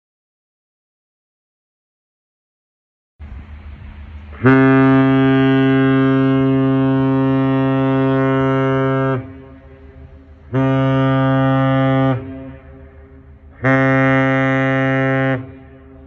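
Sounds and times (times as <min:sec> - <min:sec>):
ship steam whistle blasts: 0:04.3 - 0:16.0.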